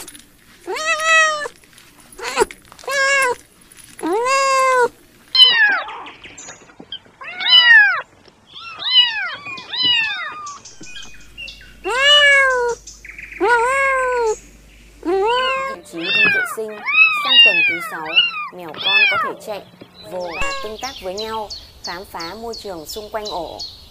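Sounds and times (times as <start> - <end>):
kittens meowing: 0.7 - 1.6, 2.2 - 3.4, 4.0 - 6.1, 7.0 - 11.1, 11.7 - 14.4, 15.0 - 21.4.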